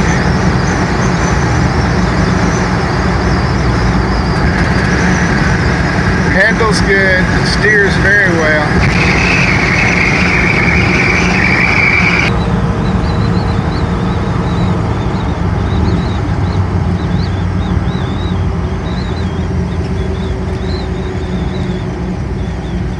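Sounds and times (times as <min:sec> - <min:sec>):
car engine wind and tyre drone: 0:00.0 - 0:22.9
high whistle: 0:08.8 - 0:12.4.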